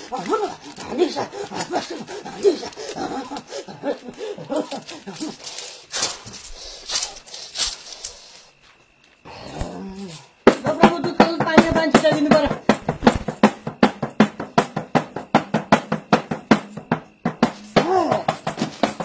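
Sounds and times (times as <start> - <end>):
man making whining calls: 0.0 - 5.6.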